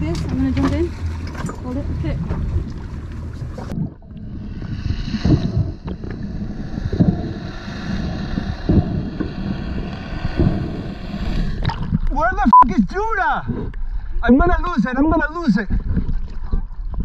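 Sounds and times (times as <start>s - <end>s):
low underwater thumps: 0.0s - 12.4s
boat noise: 0.0s - 14.7s
muffled underwater wash: 0.0s - 17.0s
wind: 0.0s - 17.0s.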